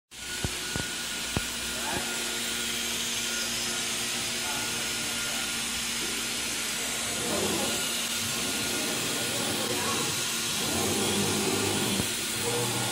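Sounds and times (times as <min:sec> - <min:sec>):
machine hum with high hiss: 0:00.2 - 0:12.9
faint voices: 0:08.4 - 0:11.8.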